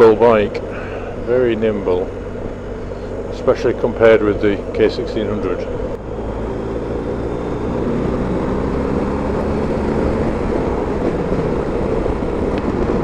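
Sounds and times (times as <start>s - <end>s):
motorcycle engine running: 0.0s - 13.0s
road noise: 0.0s - 13.0s
wind noise: 5.4s - 13.0s.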